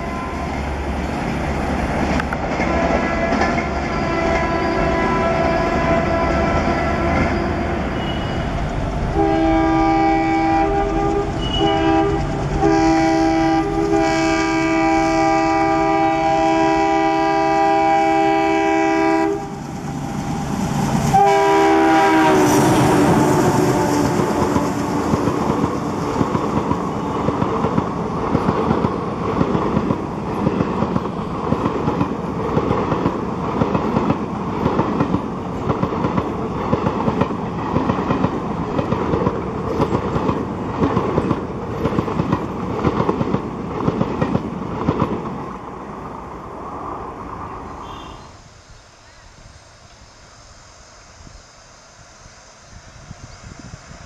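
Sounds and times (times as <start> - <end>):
locomotive horn blasts: 0.0 - 0.6, 2.6 - 8.5, 9.2 - 19.6, 21.1 - 25.2, 47.8 - 48.4
diesel locomotive passing: 0.0 - 54.0
train wheels clacking on rails: 2.0 - 5.0, 10.6 - 14.2, 22.2 - 45.5.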